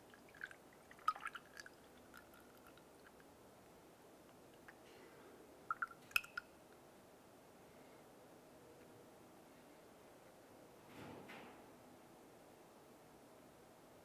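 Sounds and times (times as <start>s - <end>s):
liquid pouring through funnel: 0.0s - 3.3s, 5.7s - 6.4s
drips and clicks: 5.7s - 6.5s.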